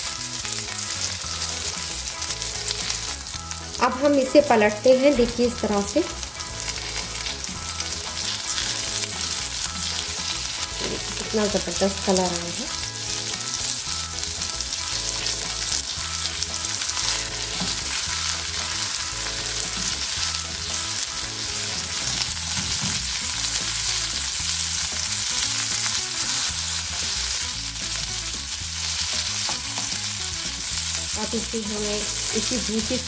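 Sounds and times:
food sizzling in oil: 0.0 - 33.0.

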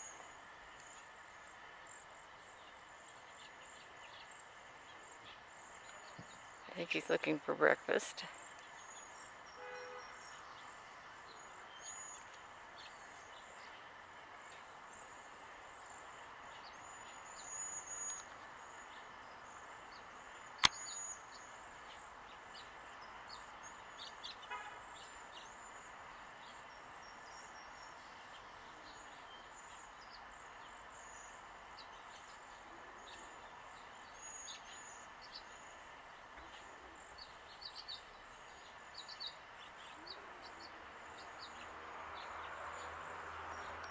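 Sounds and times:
distant birds chirping: 0.0 - 43.9
sharp click: 20.6 - 20.9.

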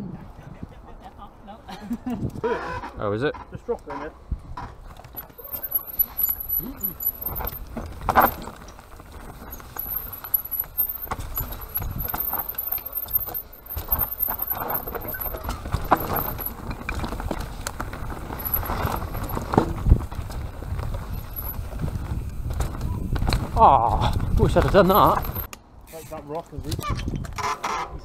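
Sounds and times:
bike chain and frame rattling: 4.8 - 25.5
bike tyres rolling over dirt: 4.8 - 25.5.

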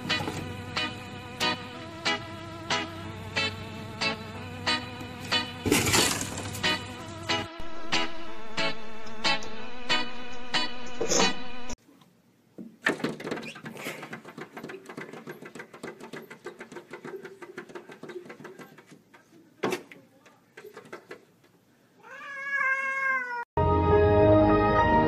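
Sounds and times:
cat meowing: 22.0 - 23.5.

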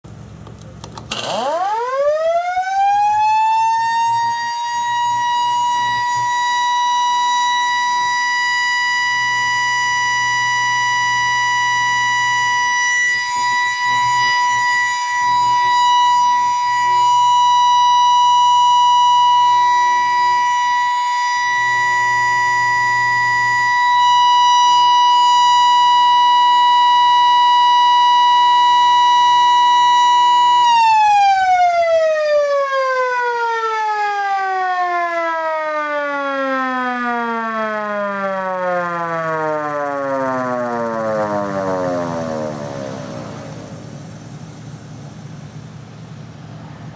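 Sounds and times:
motor-driven siren wailing: 1.0 - 45.6.

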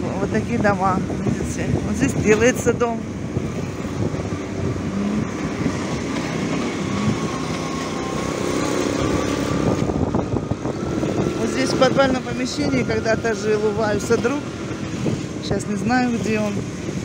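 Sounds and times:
road noise: 0.0 - 17.0.

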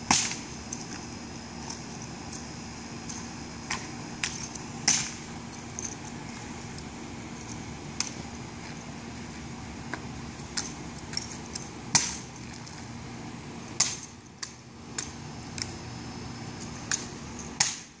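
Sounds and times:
steady low hum: 0.0 - 18.0.

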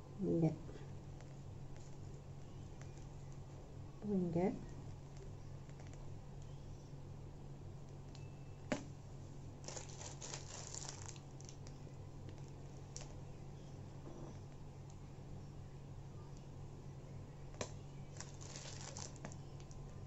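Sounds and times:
low steady hum: 0.0 - 20.0
piping bag crinkling: 9.5 - 13.4, 17.5 - 20.0.

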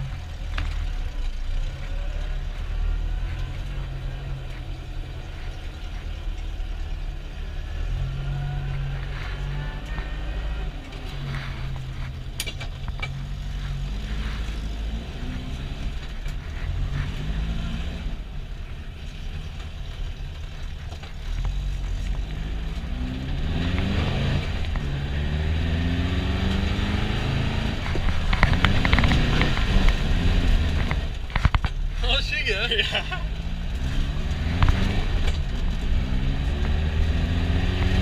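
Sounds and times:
car engine revving: 0.0 - 38.0
rapid clicks and knocks: 27.9 - 30.1.

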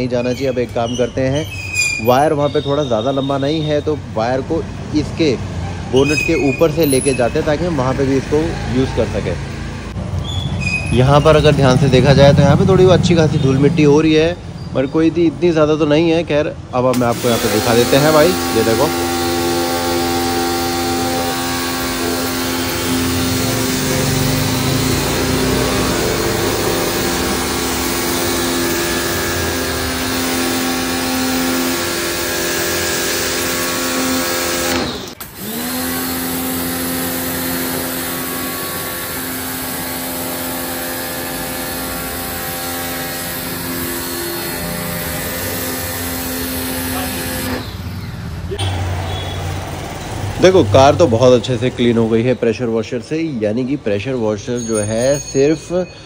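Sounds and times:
water jet hissing: 16.9 - 35.4
pressure washer motor hum: 16.9 - 51.0.

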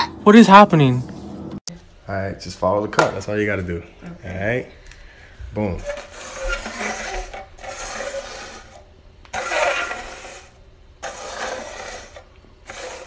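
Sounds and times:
plastic cups scraping on countertop: 5.6 - 13.0.

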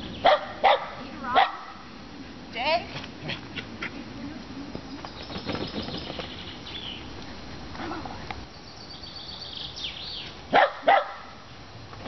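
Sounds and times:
dog barking: 0.2 - 1.9, 10.5 - 11.4.

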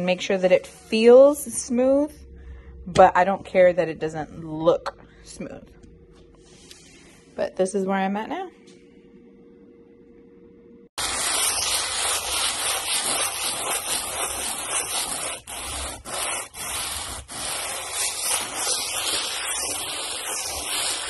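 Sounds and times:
sandpaper rubbing on hard surface: 11.0 - 21.0.

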